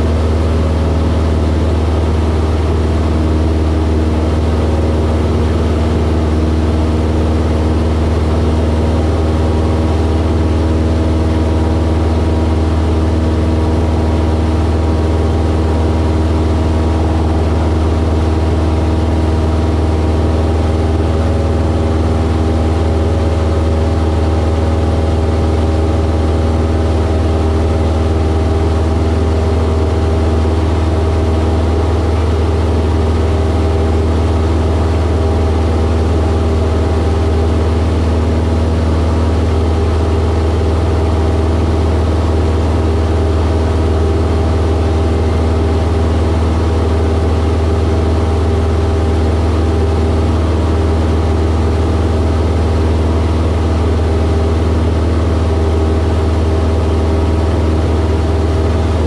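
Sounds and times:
propeller aircraft engine drone: 0.0s - 59.0s.

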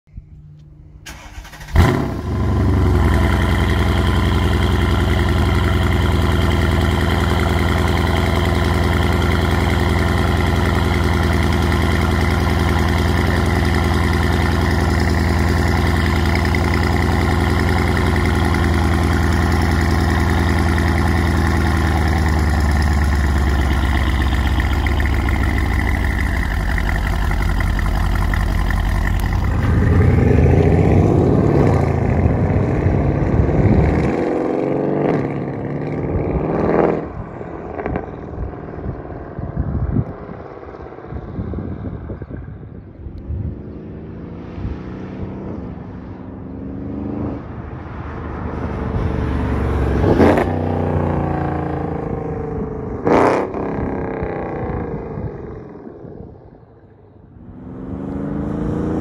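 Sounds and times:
car engine starting and idling: 0.1s - 36.2s.

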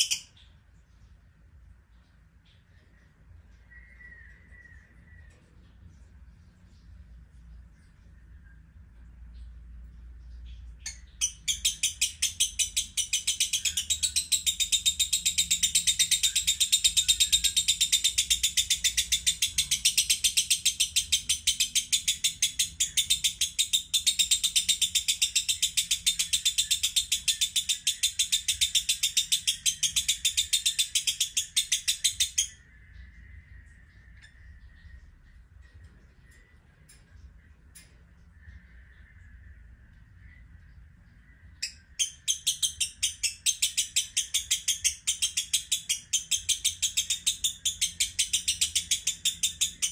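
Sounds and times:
lovebird chattering: 0.0s - 0.5s, 10.5s - 32.7s, 41.6s - 49.9s.

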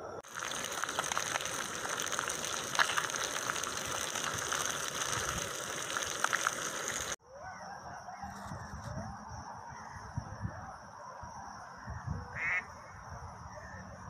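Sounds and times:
fat popping: 0.2s - 7.2s
meat sizzling in a pan: 0.2s - 7.2s.

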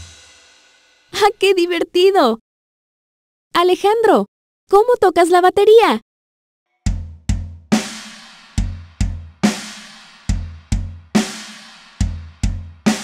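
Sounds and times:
cymbal crash ringing: 0.0s - 1.1s
bass drum kicks: 6.9s - 7.8s, 8.6s - 9.6s, 10.3s - 11.2s, 12.0s - 13.0s.

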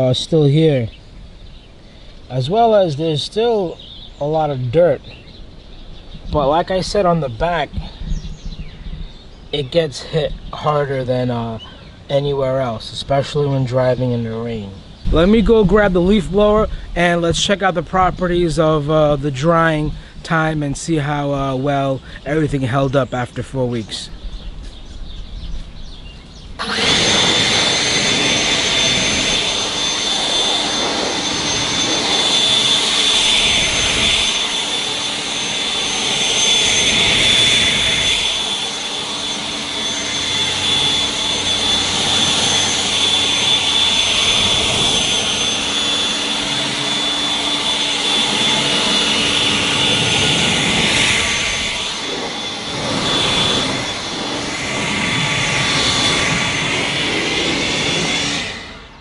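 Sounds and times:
leaf blower whining: 14.8s - 22.8s, 24.0s - 59.0s.

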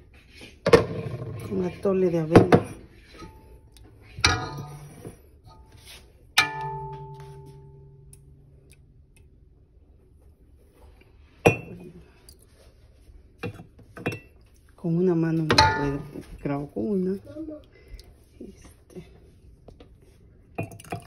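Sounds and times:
ladle clanking on metal pot: 4.1s - 5.7s, 6.3s - 8.4s, 15.4s - 16.4s.

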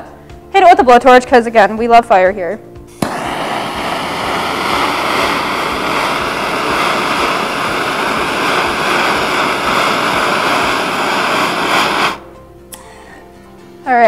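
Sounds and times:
blowtorch flame hissing: 2.9s - 12.3s.

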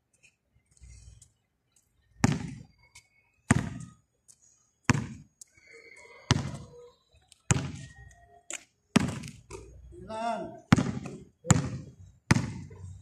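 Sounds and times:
basketball bouncing on concrete: 2.2s - 2.7s, 3.5s - 4.0s, 4.8s - 5.3s, 6.3s - 6.7s, 7.5s - 8.1s, 8.9s - 9.7s, 10.7s - 12.9s.

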